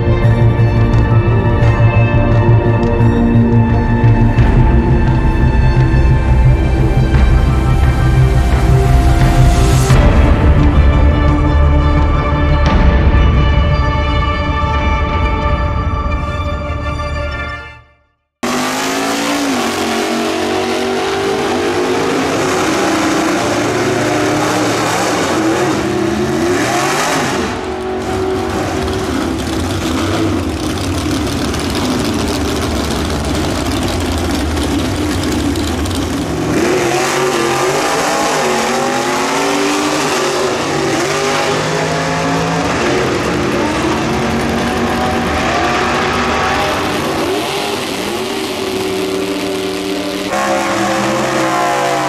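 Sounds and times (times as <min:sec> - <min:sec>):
drag car engines revving: 0:18.4 - 0:52.0.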